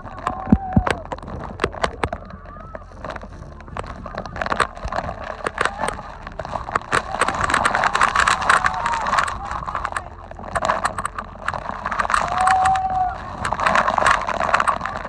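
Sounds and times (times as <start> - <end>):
people whooping shouts: 0.0 - 1.5, 6.9 - 10.2, 12.0 - 15.0
water spray tapping on camera: 0.0 - 15.0
wind rumble on microphone: 0.0 - 15.0.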